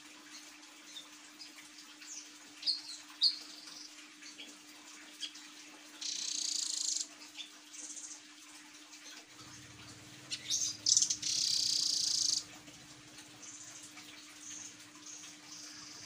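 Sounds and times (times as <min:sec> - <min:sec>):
bird chipping calls: 0:10.2 - 0:12.5
bird buzzing trill: 0:10.2 - 0:12.6.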